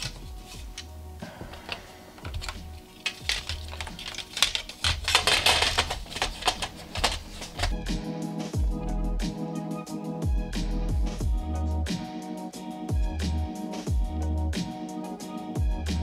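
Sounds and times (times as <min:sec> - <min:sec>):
background music with bass beat: 0:00.0 - 0:16.0
plastic and metal parts clicking: 0:01.5 - 0:07.8.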